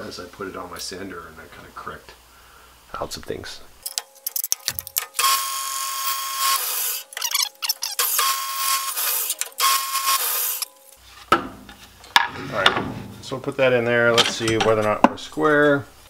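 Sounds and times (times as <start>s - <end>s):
bandsaw cutting wood: 5.2s - 10.7s.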